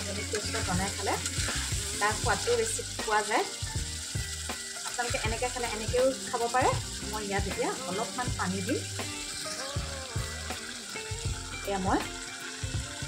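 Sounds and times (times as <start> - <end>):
chicken sizzling in a wok: 0.0 - 13.0
spatula stirring in a wok: 0.0 - 13.0.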